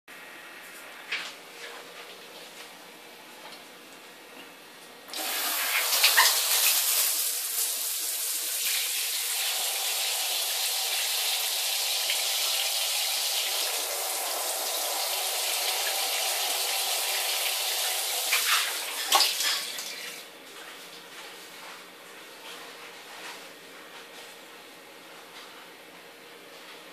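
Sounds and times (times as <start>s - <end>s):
shower spraying onto tiled floor: 5.1s - 20.2s.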